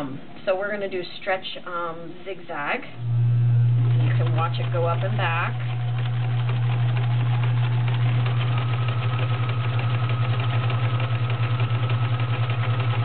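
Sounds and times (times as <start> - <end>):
faint high whine: 2.8 - 5.9
sewing machine stitching: 3.7 - 13.0.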